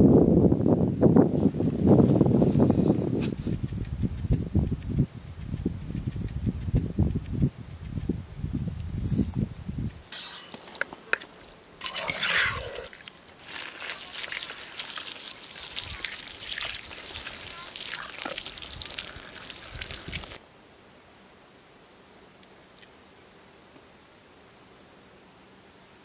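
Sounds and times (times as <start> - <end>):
water splashing on vegetables: 11.4 - 20.4
water dripping onto ground: 12.8 - 20.4.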